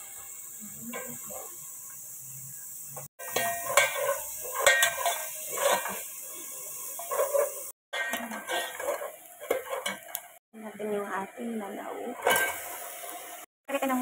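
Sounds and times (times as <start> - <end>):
onion and garlic sizzling in oil: 0.0 - 14.0
spoon scraping and clinking in pot: 3.2 - 10.4.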